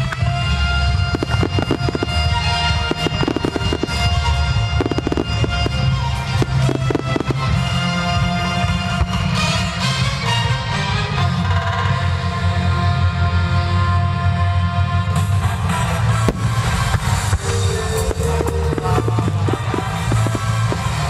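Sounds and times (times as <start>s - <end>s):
fireworks crackling: 0.0s - 9.7s, 15.7s - 21.0s
music playing: 0.0s - 21.0s
firework shells bursting: 1.0s - 7.6s, 16.3s - 21.0s.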